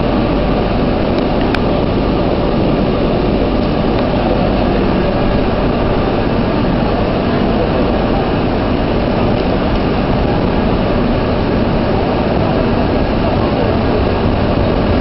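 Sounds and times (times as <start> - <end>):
train noise with faint hum: 0.0 - 15.0.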